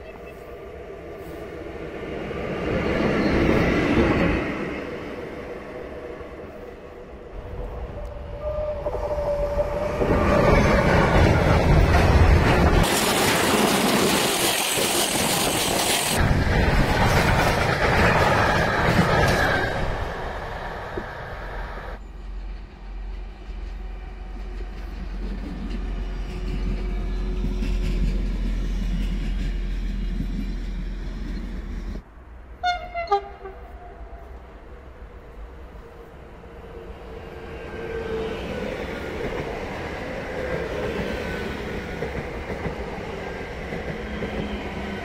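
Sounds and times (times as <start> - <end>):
railcar engine hum: 0.0 - 45.0
train horn blasts: 8.3 - 10.2, 32.6 - 34.3.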